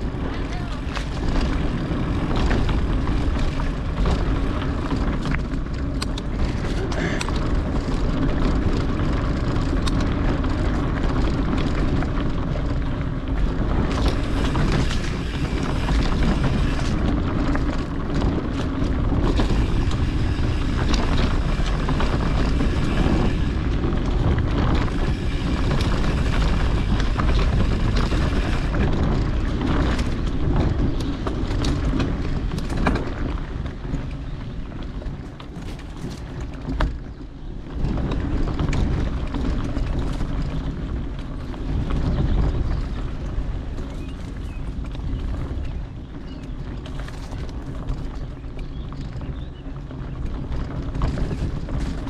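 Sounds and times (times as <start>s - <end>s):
bike clicks and rattles: 0.0s - 52.0s
bike tyre noise: 0.0s - 52.0s
wind on microphone: 0.0s - 52.0s.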